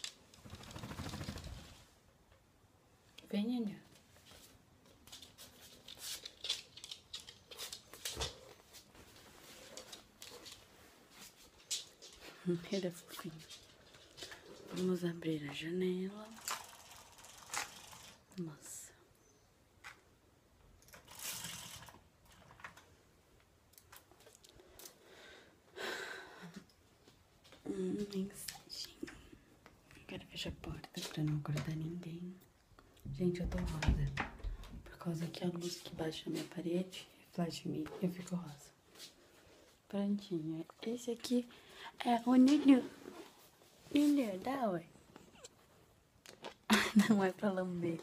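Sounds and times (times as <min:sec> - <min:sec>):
dog claws clicking on hard floor: 0:05.1 - 0:08.5.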